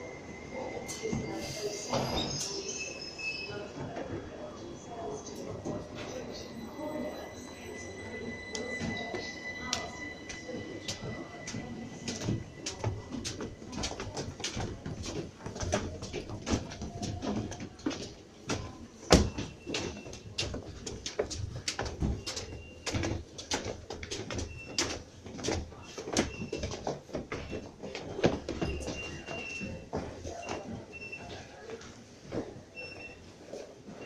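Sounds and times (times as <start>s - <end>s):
footsteps on metal-edged stairs: 8.6s - 31.2s.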